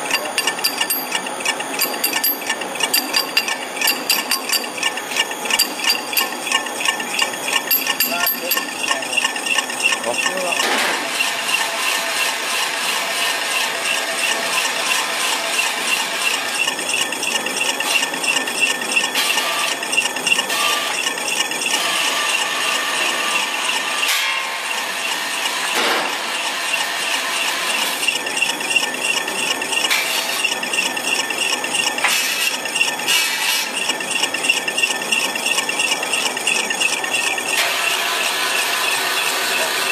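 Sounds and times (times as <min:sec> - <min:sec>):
high-pitched pulsing tone: 0:00.0 - 0:04.9, 0:05.5 - 0:10.2
extruder machine running: 0:00.0 - 0:39.9.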